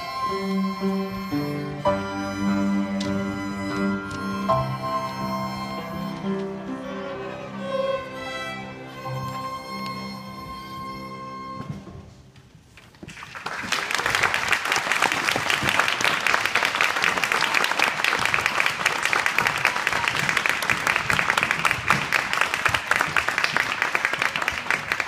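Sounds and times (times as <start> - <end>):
audience applause: 13.1 - 25.0.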